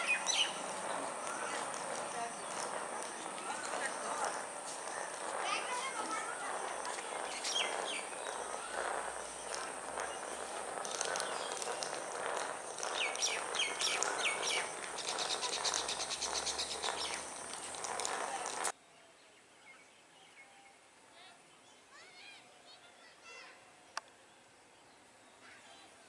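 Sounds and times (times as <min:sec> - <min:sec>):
birds chirping and calling: 0:00.0 - 0:18.7
steady high whine: 0:00.0 - 0:18.7
outdoor background noise: 0:00.0 - 0:26.0.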